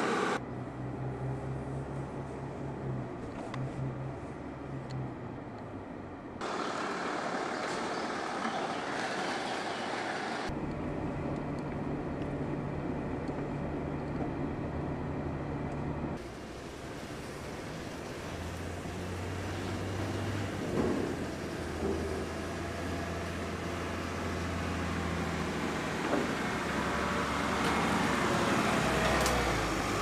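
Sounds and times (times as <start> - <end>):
car engine hum: 0.0 - 30.0
tyres rolling over steel ramp: 19.4 - 27.9.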